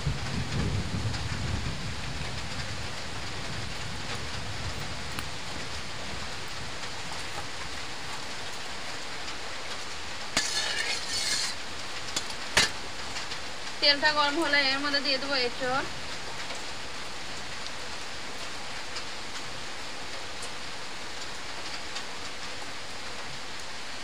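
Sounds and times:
rain hissing: 0.0 - 24.0
spatula clinking against pan: 10.4 - 11.5
metal spatula scraping wok: 10.4 - 11.6, 12.2 - 12.8.

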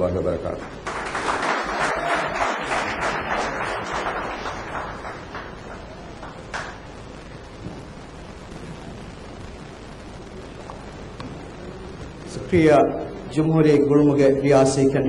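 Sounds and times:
audience applauding: 0.4 - 6.9.

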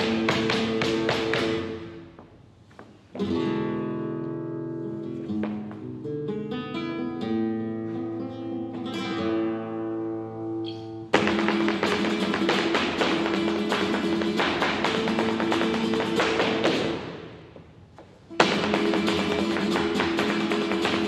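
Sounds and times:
flamenco guitar playing: 0.0 - 2.2, 3.2 - 17.4, 18.2 - 21.0.

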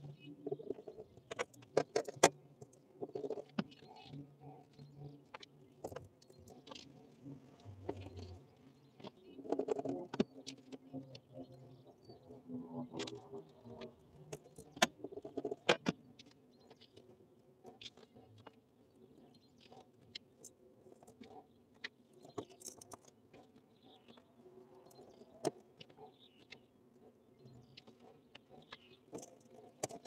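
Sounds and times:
clicks and taps of wire connectors: 29.1 - 30.0.

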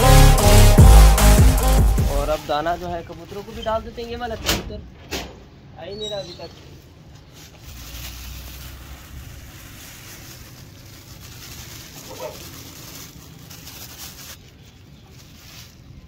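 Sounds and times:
plastic bag crinkling: 7.1 - 16.0.

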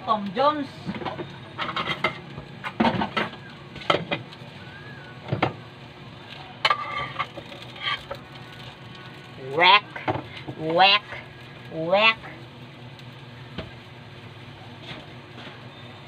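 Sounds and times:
hotdogs sizzling in frying pan: 0.0 - 16.0
dishes and utensils clinking: 0.9 - 4.2, 6.6 - 8.2.

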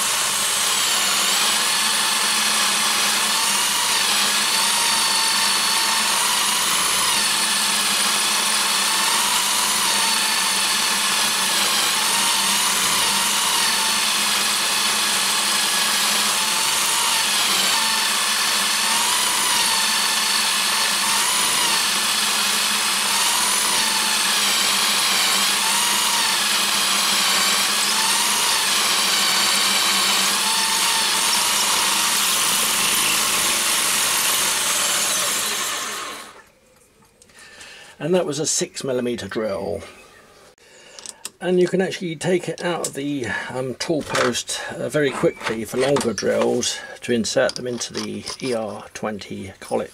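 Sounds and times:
power drill whining: 0.0 - 36.5, 44.0 - 46.9.

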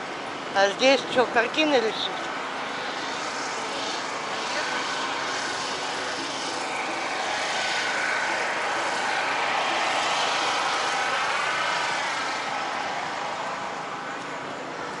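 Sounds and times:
street traffic noise: 0.0 - 15.0.

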